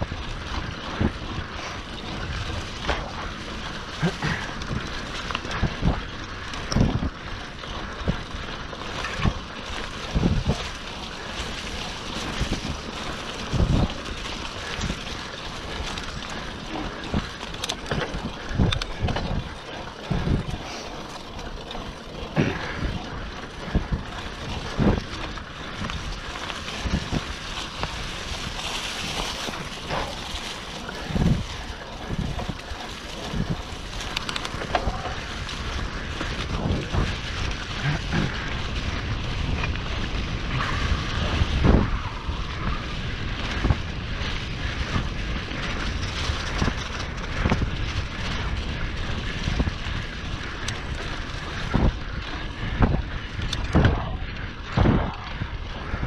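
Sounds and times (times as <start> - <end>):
bike rattling and knocking: 0.0 - 56.0
wind noise on microphone: 0.0 - 56.0.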